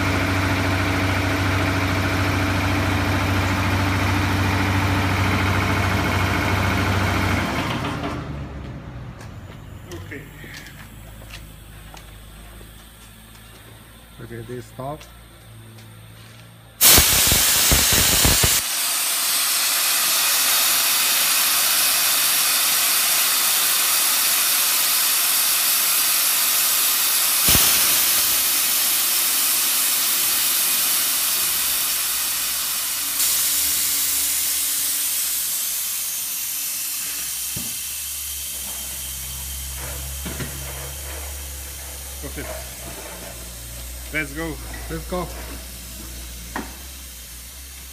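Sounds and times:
gas hissing from valve: 16.8 - 47.9.

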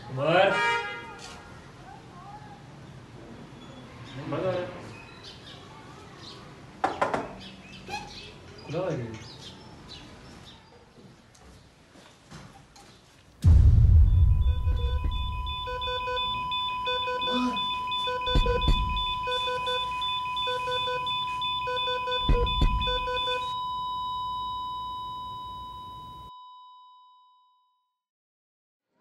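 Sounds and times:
deep booms: 13.4 - 16.8
steady high electronic tone: 13.4 - 26.2
pulsed alarm beeping: 13.4 - 26.3.

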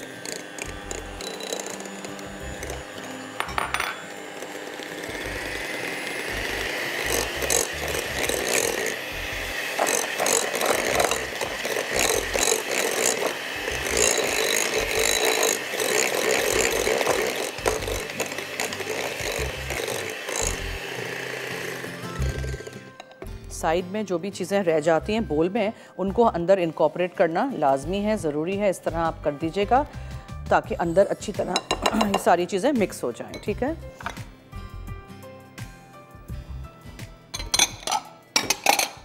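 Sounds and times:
electric hand mixer motor: 0.0 - 23.3.

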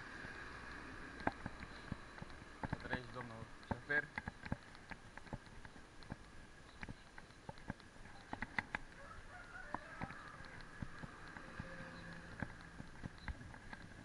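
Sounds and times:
bicycle rolling on asphalt: 0.0 - 14.0.

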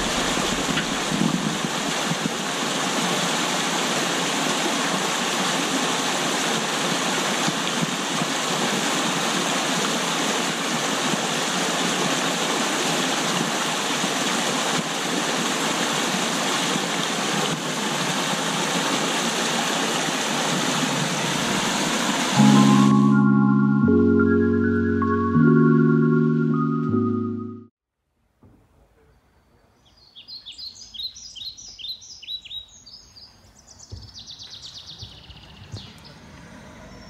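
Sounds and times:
stream rushing over rocks: 0.0 - 22.7.

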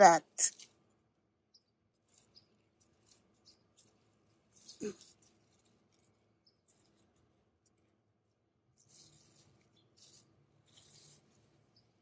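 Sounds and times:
soft leaf crackles: 1.9 - 7.8, 8.8 - 12.0
rustling leaves handled by hand: 1.9 - 7.9, 8.7 - 12.0.

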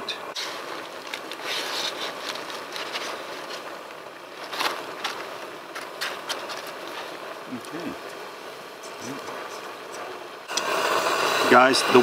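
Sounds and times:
steady background hiss: 0.0 - 12.0
rustling packaging: 0.4 - 7.2
dry pasta clicking and crackling: 0.4 - 8.2.

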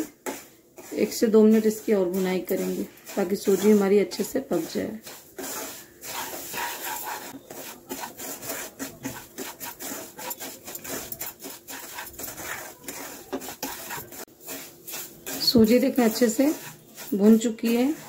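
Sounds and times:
wooden spatula scraping pan: 0.0 - 18.0.

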